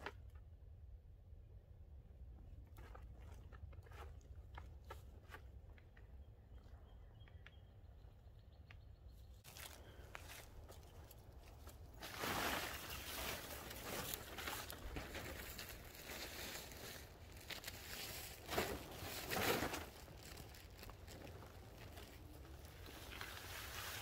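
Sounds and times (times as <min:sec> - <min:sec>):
plastic tarp crinkling: 0:11.8 - 0:24.0.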